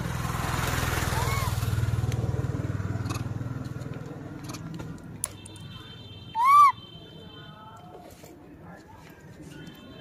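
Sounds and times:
motor vehicle rumble: 0.0 - 6.7
monkey coo call: 6.4 - 6.8.

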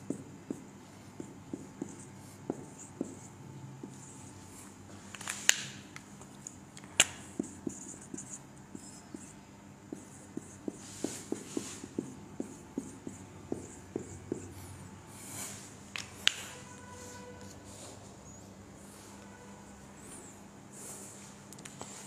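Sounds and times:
marker tapping on whiteboard: 0.0 - 4.1, 7.0 - 9.3, 9.9 - 14.5
marker pen clicks: 5.2 - 7.5, 16.0 - 16.5.

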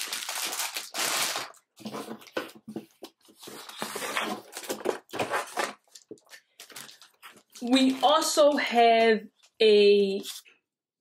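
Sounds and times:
plastic bags crinkling: 0.0 - 1.8, 3.6 - 8.0.

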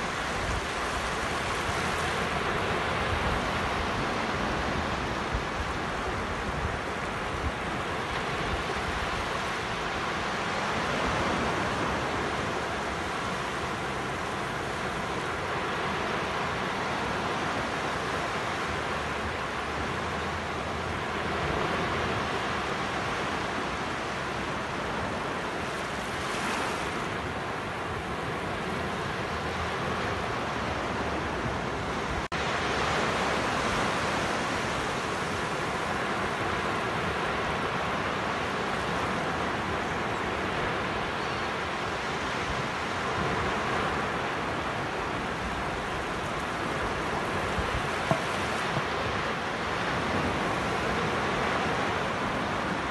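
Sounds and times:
waves washing up a beach: 0.0 - 52.9.

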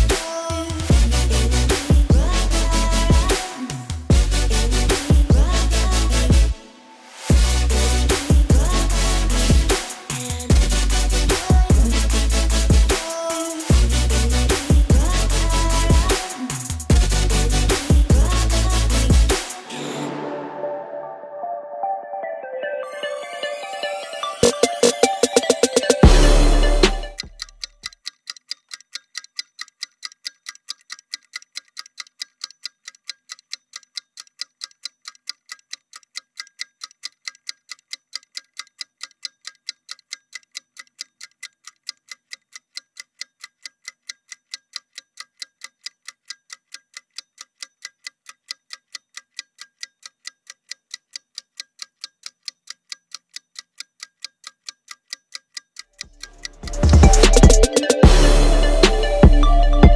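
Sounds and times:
clock-like ticking: 0.0 - 6.6, 7.2 - 20.2, 23.6 - 59.9
electronic music: 0.0 - 27.6, 56.1 - 59.9.

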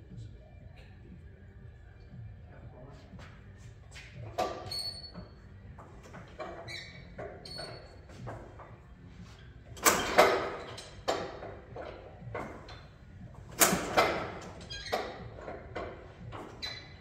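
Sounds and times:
metallic clanks on engine: 9.8 - 16.6.

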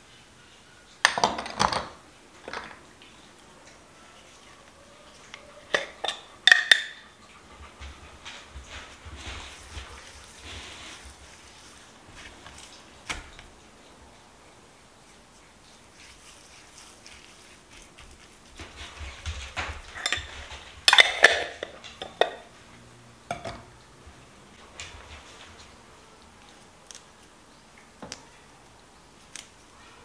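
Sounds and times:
utensils and cookware clattering: 5.6 - 7.1, 18.6 - 22.6.

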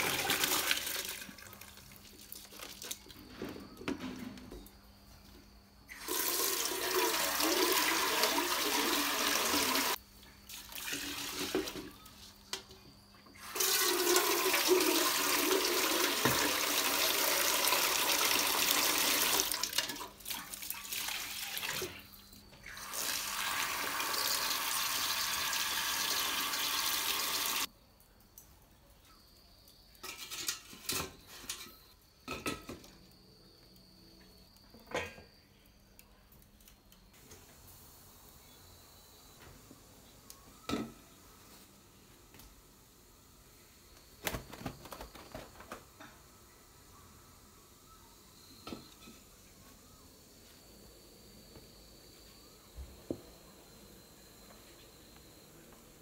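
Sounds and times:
tap water running into metal bowl: 5.9 - 11.9, 13.4 - 22.0, 22.7 - 27.7.

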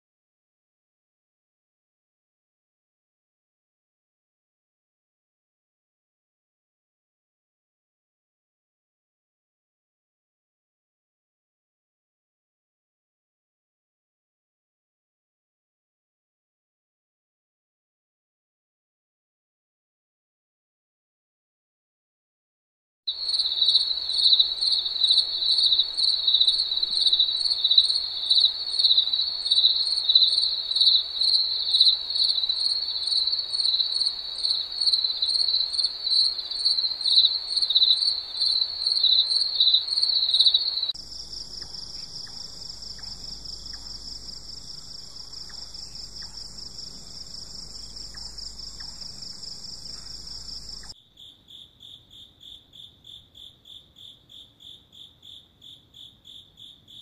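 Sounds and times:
insect chorus trilling: 23.1 - 57.0.

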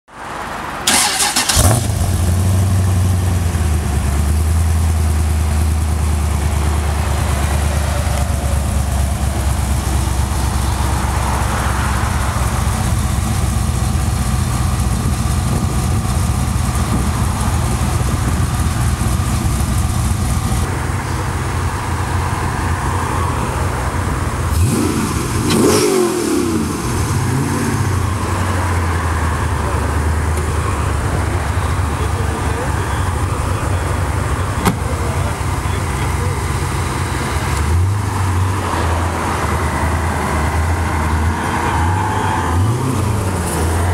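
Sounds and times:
car engine starting and idling: 0.2 - 43.9
car engine revving: 0.8 - 43.9.

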